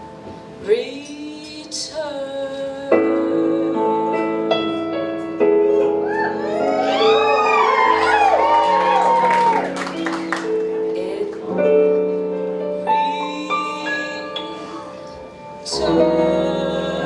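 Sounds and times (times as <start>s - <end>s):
audience whoops: 6.0s - 10.5s.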